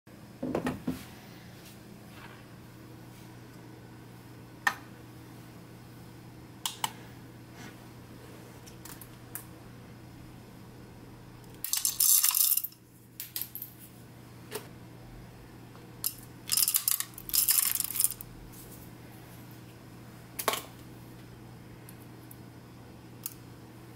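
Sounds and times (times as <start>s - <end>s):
single beans clicking: 11.5s - 13.6s, 16.0s - 18.2s
coffee beans rattling into cup: 11.6s - 12.8s, 16.0s - 18.2s.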